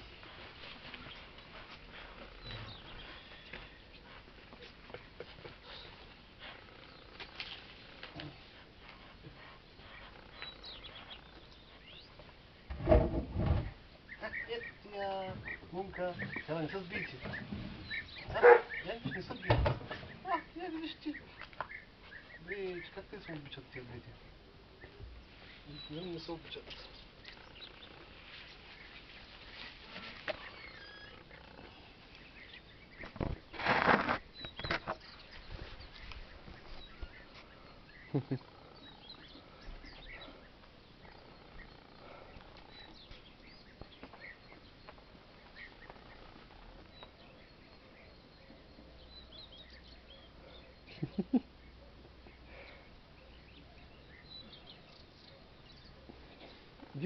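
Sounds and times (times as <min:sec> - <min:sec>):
light steps and rustles: 0:00.0 - 0:13.8, 0:15.2 - 0:22.5, 0:23.2 - 0:37.8
faint bird chirps: 0:24.7 - 0:33.2, 0:34.3 - 0:57.0
scuff: 0:33.5 - 0:34.2.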